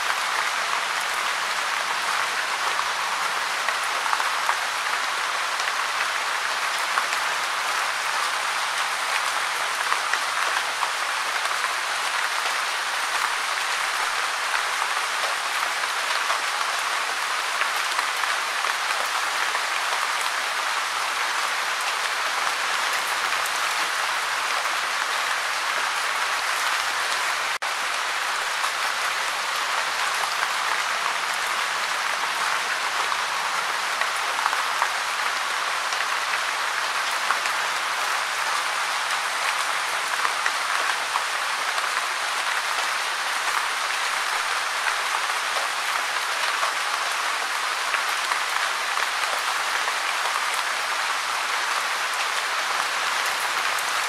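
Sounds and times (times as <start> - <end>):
gentle rain falling: 0.0 - 54.0.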